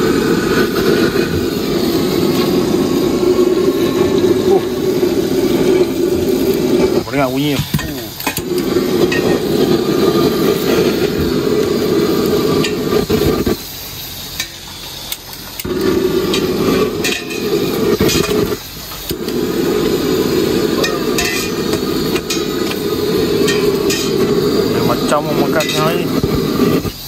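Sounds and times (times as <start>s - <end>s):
food frying: 0.0s - 27.0s
gas burner roaring: 0.0s - 27.0s
metal spatula clinking and scraping: 20.8s - 22.5s, 23.4s - 24.2s.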